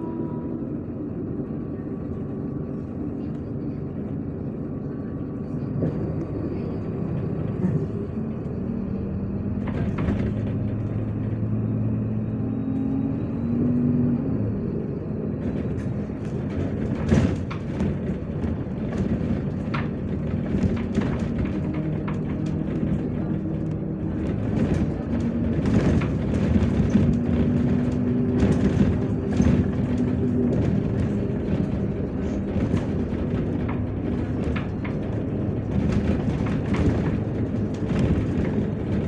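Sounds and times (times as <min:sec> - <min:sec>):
bus engine hum: 0:00.0 - 0:39.0
road noise: 0:00.0 - 0:39.0
rattles and knocks: 0:09.6 - 0:11.8, 0:15.4 - 0:39.0.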